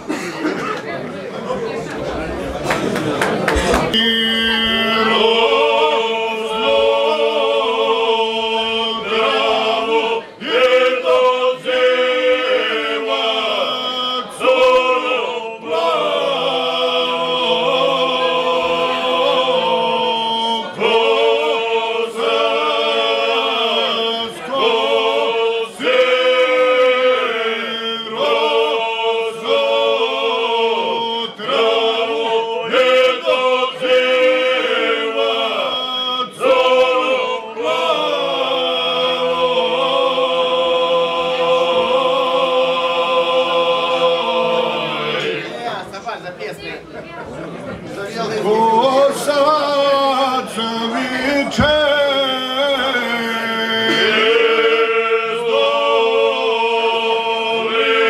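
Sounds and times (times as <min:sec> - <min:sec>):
men singing unaccompanied: 0:03.9 - 0:45.5, 0:48.3 - 0:58.0.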